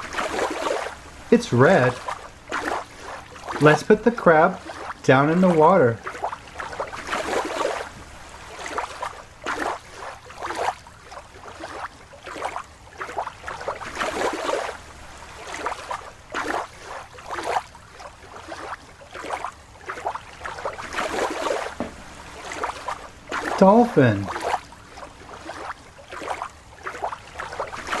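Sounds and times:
water sloshing and splashing: 0.0s - 28.0s.

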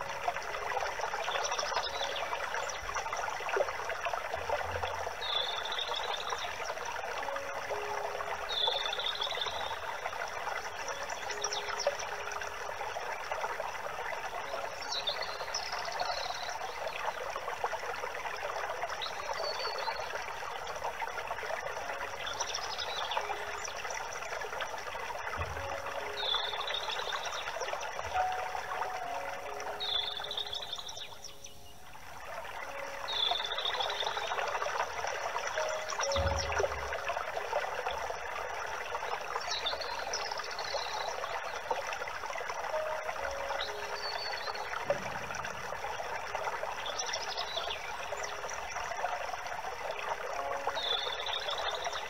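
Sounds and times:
water trickling: 0.0s - 52.0s
bird chirping: 4.7s - 6.6s, 25.4s - 31.9s, 32.7s - 34.4s, 35.6s - 37.2s.

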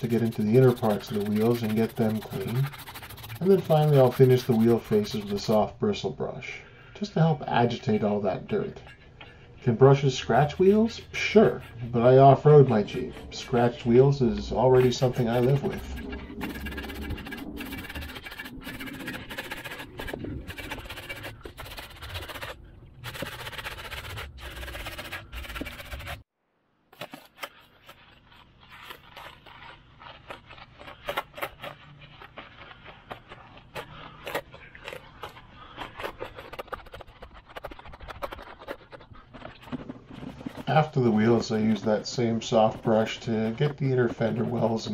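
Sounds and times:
bristle brush scrubbing a tire: 0.0s - 6.0s, 7.0s - 26.2s, 27.0s - 44.9s.

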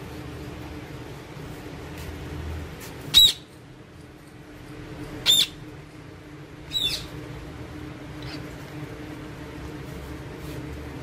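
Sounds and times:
parakeets high calls: 3.1s - 3.5s, 5.2s - 5.6s, 6.7s - 7.2s, 8.2s - 8.6s.

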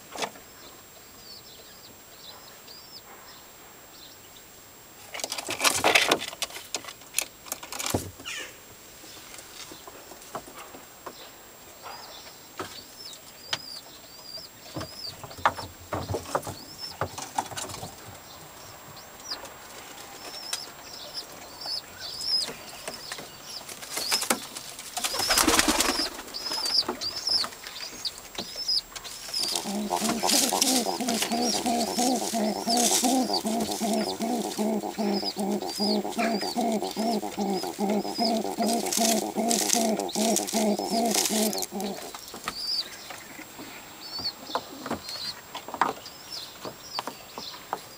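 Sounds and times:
pigeons chirping: 14.3s - 45.4s
wings flapping: 24.0s - 27.0s, 29.2s - 42.2s
pigeon cooing: 29.3s - 42.2s.

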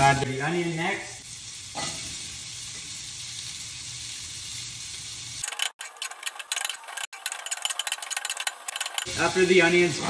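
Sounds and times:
vegetables sizzling in hot fat: 0.0s - 10.0s
tongs stirring pan: 1.4s - 9.2s.

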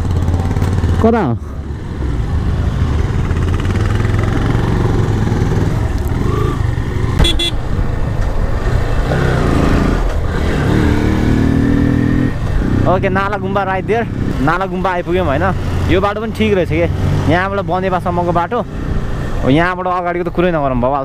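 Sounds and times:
motorcycle engine running: 0.0s - 1.2s, 2.4s - 7.7s.

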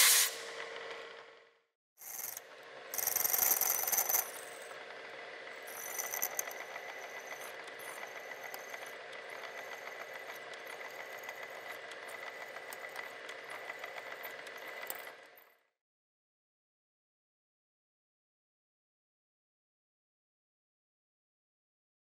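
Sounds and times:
drill bit cutting chatter: 2.0s - 15.5s
milling machine whine: 2.0s - 15.6s.

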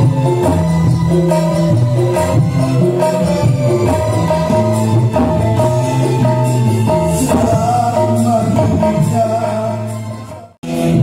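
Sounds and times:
live band through pa system: 0.0s - 11.0s
man singing into microphone: 7.0s - 11.0s.

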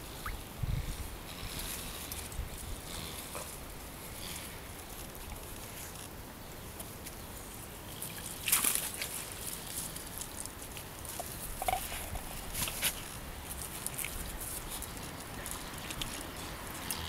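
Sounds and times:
water dripping: 0.1s - 0.5s.

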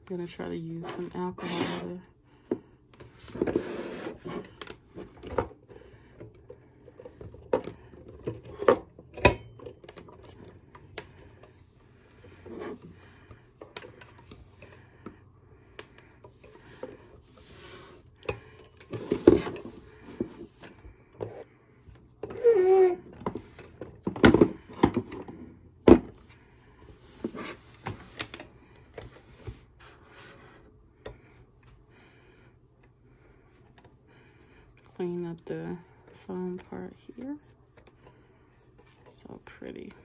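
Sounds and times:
cotton pad rubbing phone cord: 22.4s - 23.1s.

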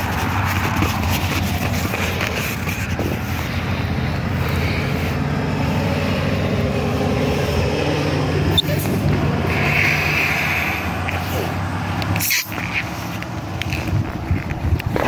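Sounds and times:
wind buffeting microphone: 13.3s - 15.0s.

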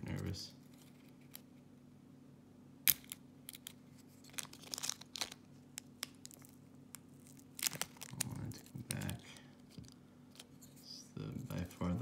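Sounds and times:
packaging tape peeling: 2.9s - 10.5s.

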